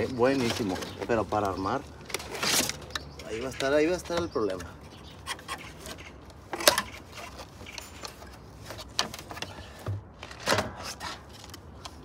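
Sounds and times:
clicks and knocks of computer parts: 6.5s - 8.2s.

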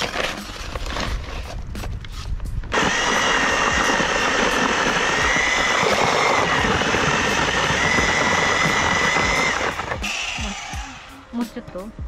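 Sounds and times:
mortar mixer running with whine: 2.7s - 11.1s.

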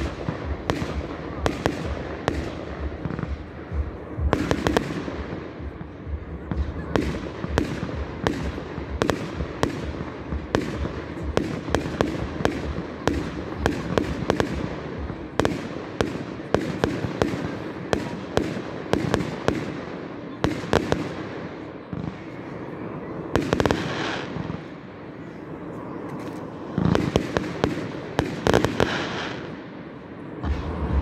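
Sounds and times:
fireworks bursting: 0.0s - 31.0s.

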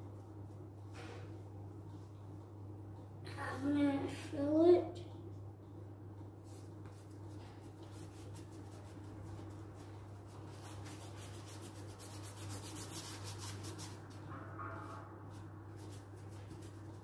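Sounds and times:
steady low hum: 0.0s - 17.0s
paintbrush scrubbing on paper: 6.4s - 14.2s, 14.8s - 17.0s.

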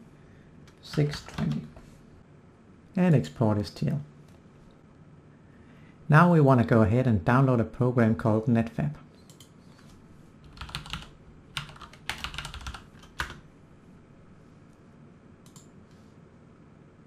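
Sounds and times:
typing on a keyboard: 10.4s - 13.4s.

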